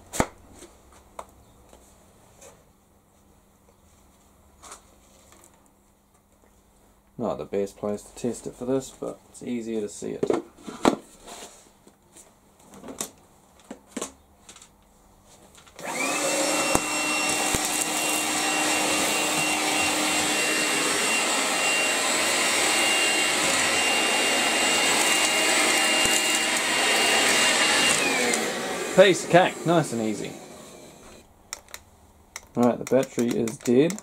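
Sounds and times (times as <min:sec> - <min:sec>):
cordless vacuum whining: 0:15.8 - 0:31.2.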